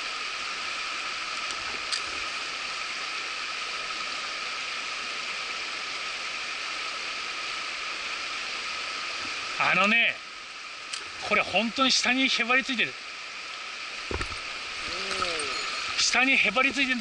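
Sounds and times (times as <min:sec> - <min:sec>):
stream rushing over stones: 0:00.0 - 0:17.0.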